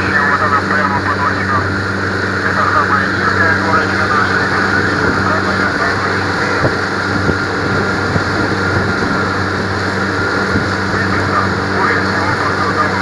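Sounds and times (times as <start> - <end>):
motorboat engine humming: 0.0 - 13.0
rushing water: 0.0 - 13.0
wind noise: 3.7 - 13.0.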